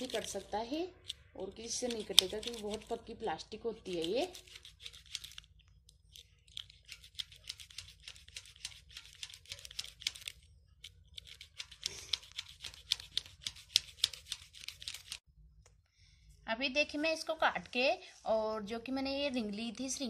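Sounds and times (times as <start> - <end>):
blade cutting plastic cords: 0.0 - 3.1, 3.8 - 15.2.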